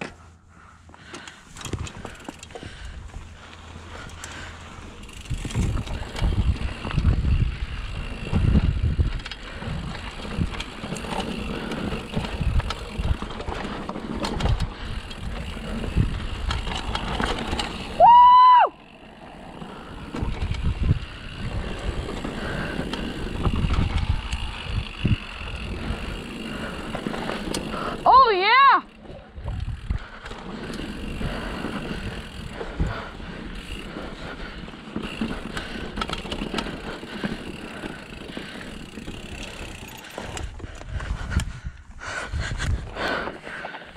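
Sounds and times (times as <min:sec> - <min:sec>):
bike knocks and rattles: 0:01.0 - 0:03.2, 0:05.0 - 0:07.4, 0:08.0 - 0:18.0, 0:19.9 - 0:27.7
bike tyres rumbling over ground: 0:01.0 - 0:43.9.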